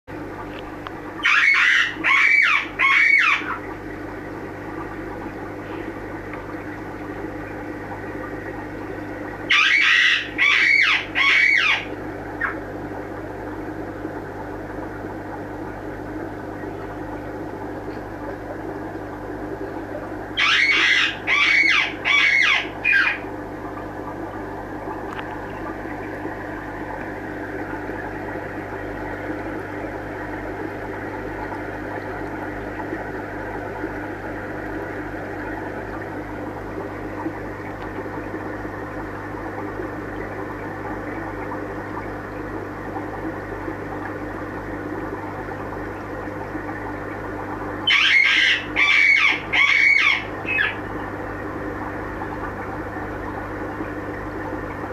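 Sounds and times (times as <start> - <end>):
steady low hum: 0.1 - 54.9
parrot squawking: 1.2 - 3.6, 9.5 - 12.6, 20.4 - 23.2, 47.8 - 50.8.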